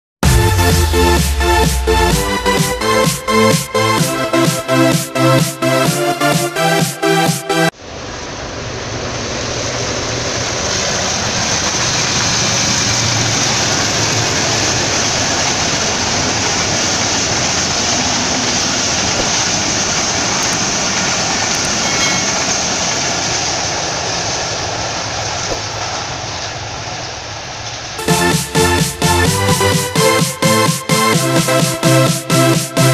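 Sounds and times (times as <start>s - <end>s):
train wheels on rails: 8.0s - 31.0s.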